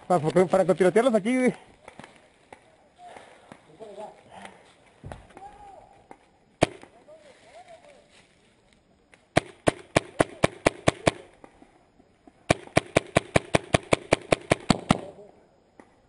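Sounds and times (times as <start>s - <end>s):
paintball marker firing: 6.1s - 6.9s, 9.3s - 11.5s, 12.5s - 15.2s.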